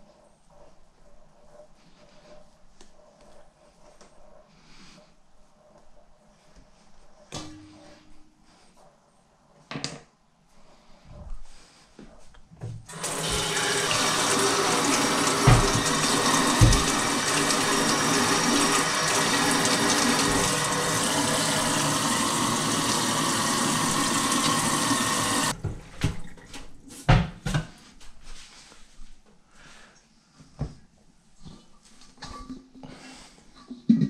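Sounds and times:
tap running into steel sink: 0:13.2 - 0:21.2.

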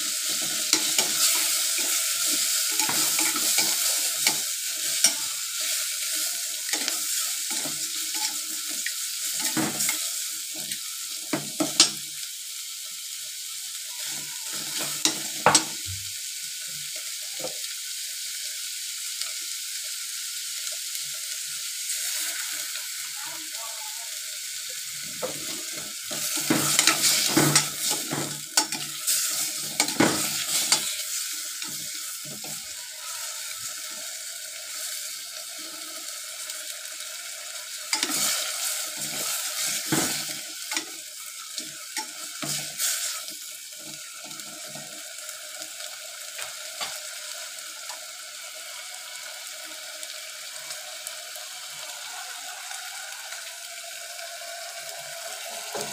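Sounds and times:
chicken sizzling in a pot: 0:00.0 - 0:55.9
metal spatula scraping a pot: 0:26.2 - 0:32.7.

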